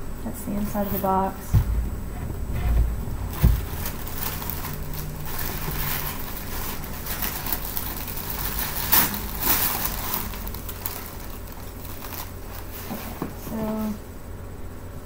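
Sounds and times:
low thump: 1.4 - 6.0
tissue paper rustling: 3.3 - 14.0.

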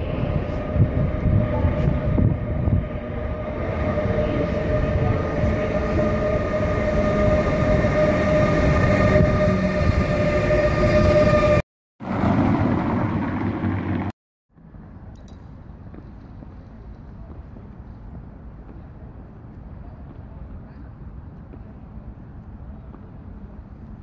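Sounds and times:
train wheels rumbling: 0.0 - 14.1.

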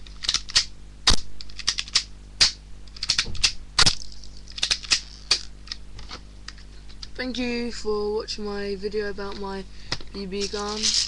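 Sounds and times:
toy gun clicks and snaps: 0.2 - 5.8.

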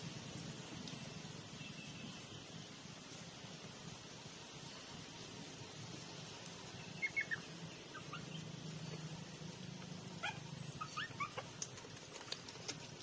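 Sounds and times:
puppies squeaking and whimpering: 7.0 - 8.5, 10.1 - 11.9.

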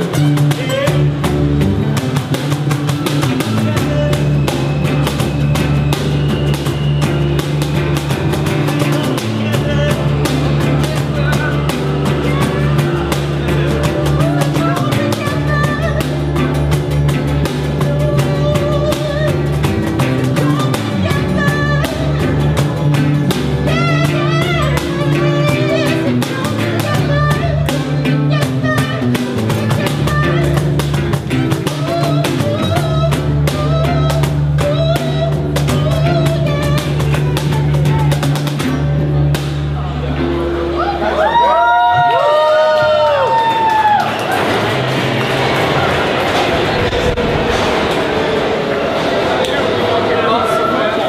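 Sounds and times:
cajon beat: 0.0 - 40.5
strummed acoustic guitars: 0.0 - 41.1, 44.1 - 50.1
electric guitar: 0.0 - 49.7.

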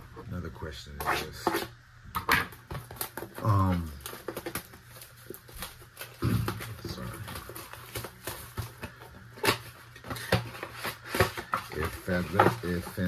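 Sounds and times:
trading cards clicking and tapping: 6.0 - 13.0.

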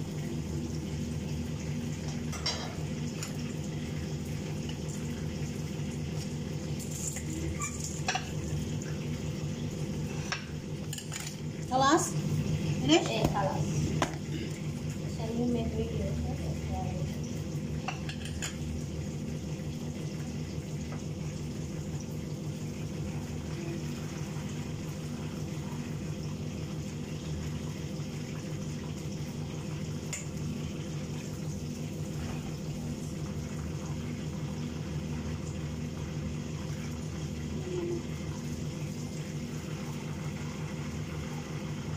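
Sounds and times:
chicken deep-frying in oil: 0.0 - 14.0, 14.6 - 41.9.

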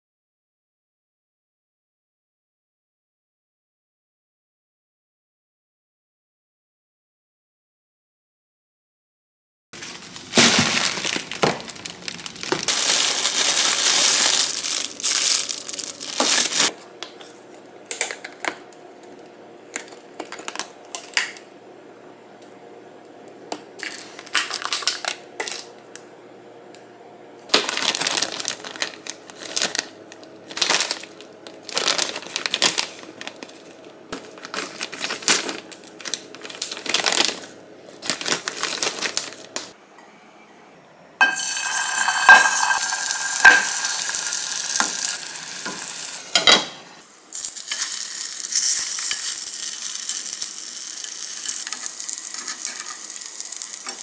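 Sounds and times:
plastic packaging crinkling: 9.8 - 16.7, 23.8 - 25.2, 27.5 - 39.7, 41.5 - 46.2, 47.3 - 54.0.

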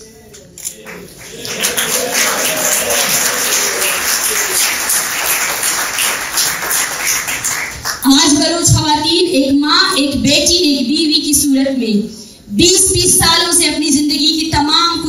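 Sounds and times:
audience applauding: 0.9 - 8.0.

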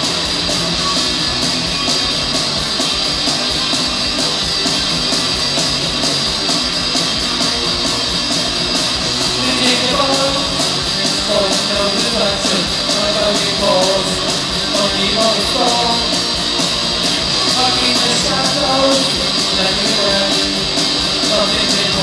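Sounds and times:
rock band playing: 0.0 - 22.0.

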